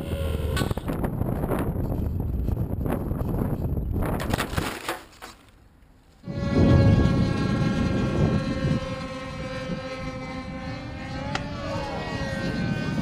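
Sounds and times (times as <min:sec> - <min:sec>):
engine pitch gliding up and down: 0:00.0 - 0:01.6, 0:06.2 - 0:13.0
model airplane engines droning: 0:00.0 - 0:03.5, 0:06.2 - 0:13.0
low rumbling noise: 0:00.0 - 0:04.2, 0:06.2 - 0:13.0.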